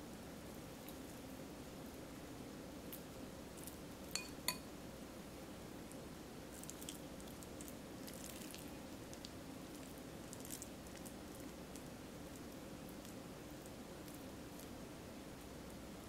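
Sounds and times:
faint steady hum: 0:00.0 - 0:16.0
spoon squishing and scraping filling: 0:03.6 - 0:04.6
spoon clinking on ceramic bowl: 0:04.1 - 0:04.7.

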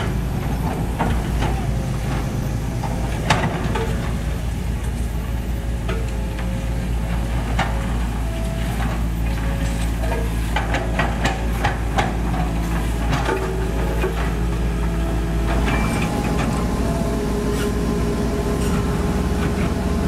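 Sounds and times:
diesel engines droning: 0:00.0 - 0:20.0.

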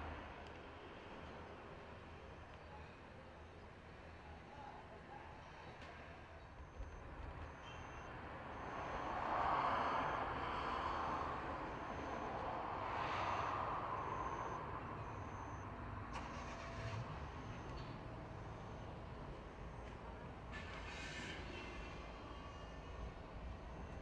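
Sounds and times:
vehicles passing: 0:00.0 - 0:24.0
high-pitched beep: 0:06.6 - 0:15.7, 0:16.4 - 0:18.9.

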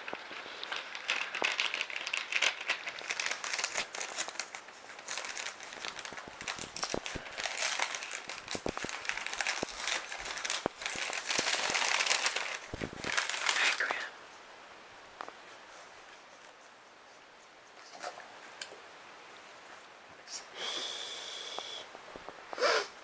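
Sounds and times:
wrapping paper crinkling and tearing: 0:00.0 - 0:14.1.

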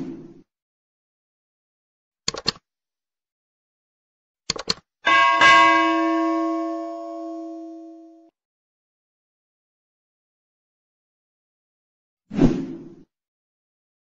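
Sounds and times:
mouse clicks: 0:02.3 - 0:02.6, 0:04.5 - 0:04.8
bell chime ringing: 0:05.1 - 0:08.3.

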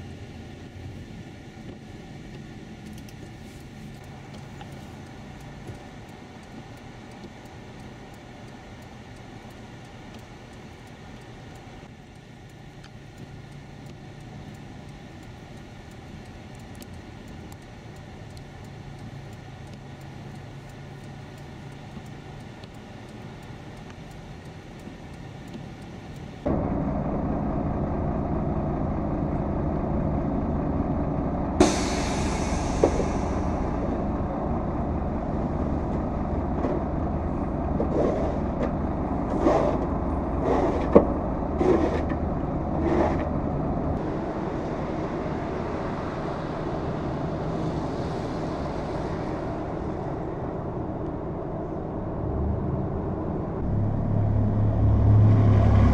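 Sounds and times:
car engine and tyres rumbling: 0:00.0 - 0:55.9
outdoor street noise: 0:00.0 - 0:55.9.

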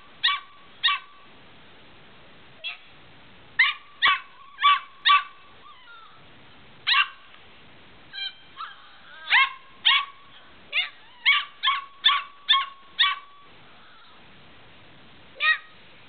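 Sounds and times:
puppy yipping: 0:00.2 - 0:01.2, 0:03.6 - 0:06.2, 0:06.9 - 0:07.2, 0:08.2 - 0:14.2.

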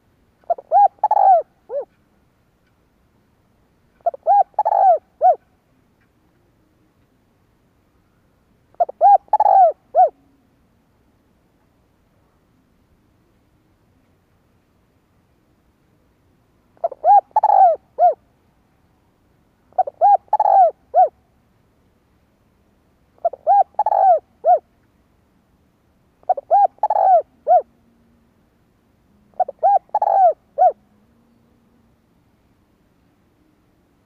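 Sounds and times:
dove cooing: 0:00.4 - 0:02.0, 0:04.0 - 0:05.5, 0:08.7 - 0:10.4, 0:16.8 - 0:18.2, 0:19.7 - 0:21.2, 0:23.2 - 0:24.7, 0:26.2 - 0:27.8, 0:29.2 - 0:31.4.

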